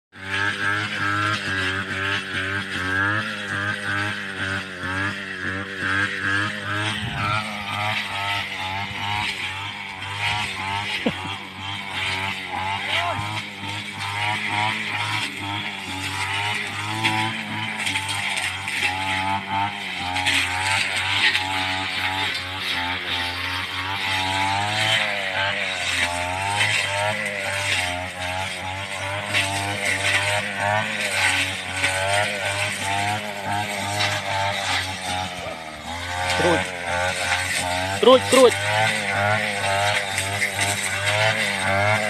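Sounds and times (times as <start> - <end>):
small vehicle engine running: 0.1 - 42.0.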